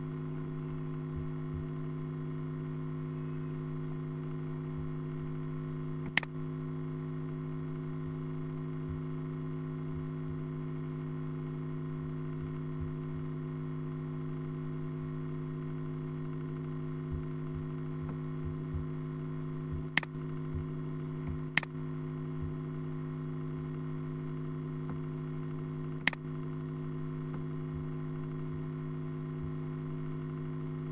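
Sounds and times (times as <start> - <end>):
low electrical hum: 0.0 - 30.9
computer mouse clicks: 6.0 - 6.3, 26.0 - 26.2.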